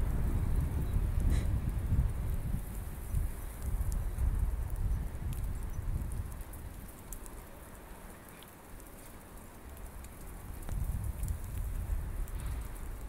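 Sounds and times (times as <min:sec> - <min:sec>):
wind rumbling on microphone: 0:00.0 - 0:07.9, 0:08.7 - 0:13.0
faint ticks: 0:03.1 - 0:13.0.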